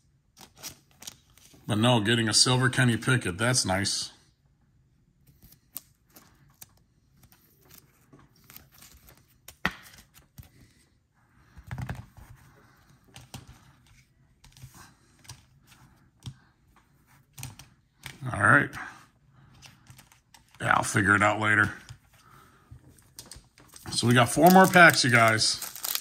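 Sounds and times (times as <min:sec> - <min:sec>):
cards clicking and rustling: 0:00.3 - 0:01.6, 0:05.2 - 0:10.8, 0:11.4 - 0:18.8, 0:19.5 - 0:21.0, 0:22.8 - 0:26.0.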